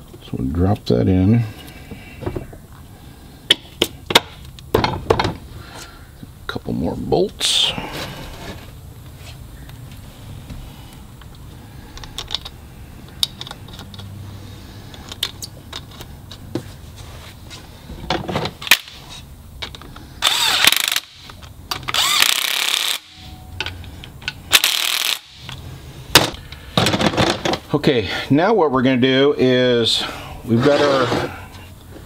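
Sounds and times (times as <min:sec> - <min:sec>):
cordless power tool driving bolts: 0:20.2 - 0:23.2, 0:24.5 - 0:25.6.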